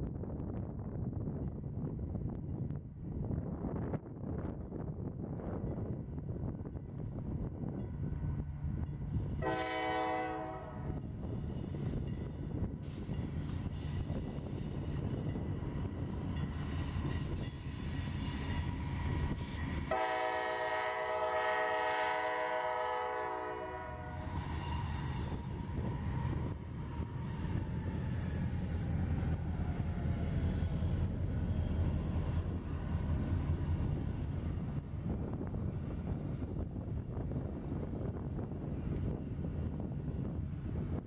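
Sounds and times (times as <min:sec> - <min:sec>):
diesel locomotive engines rumbling: 0:00.0 - 0:41.0
train horn blast: 0:09.4 - 0:11.1, 0:19.8 - 0:25.8.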